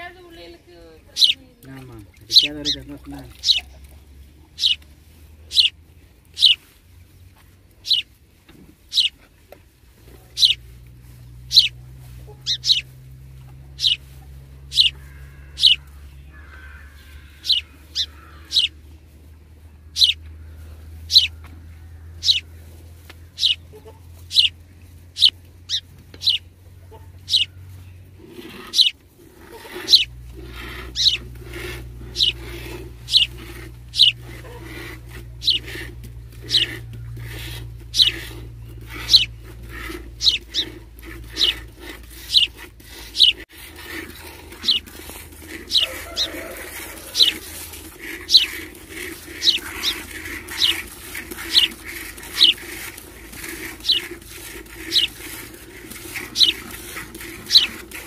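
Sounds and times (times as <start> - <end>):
milk squirting into metal bucket: 40.9 - 58.0.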